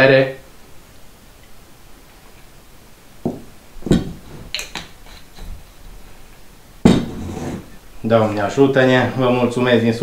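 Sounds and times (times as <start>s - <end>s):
tableware knocking and clinking: 6.8s - 7.7s.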